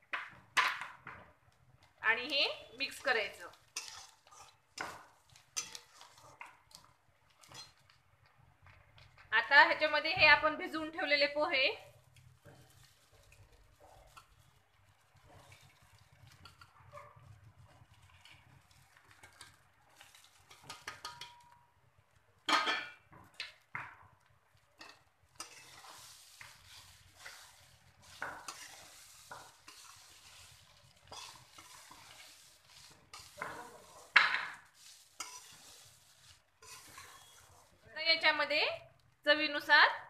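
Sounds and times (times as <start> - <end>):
faint sizzle: 0.0 - 40.0
spatula scraping metal pan: 3.7 - 6.8, 7.4 - 7.8, 19.3 - 21.5, 24.8 - 37.8.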